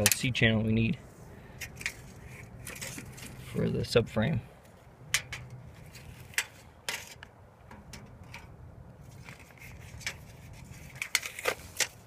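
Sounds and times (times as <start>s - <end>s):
tape measure clicking and scraping: 1.6s - 3.5s, 5.2s - 8.5s, 9.1s - 12.0s.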